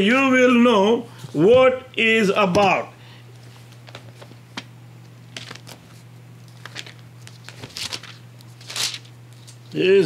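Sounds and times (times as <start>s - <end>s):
low electrical hum: 0.0s - 10.0s
book pages turning: 5.3s - 9.8s.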